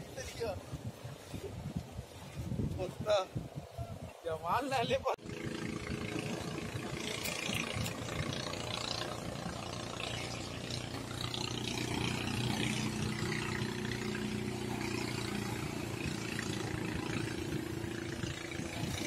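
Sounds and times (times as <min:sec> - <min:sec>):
wind on microphone: 0:00.0 - 0:19.0
engine hum: 0:05.2 - 0:19.0.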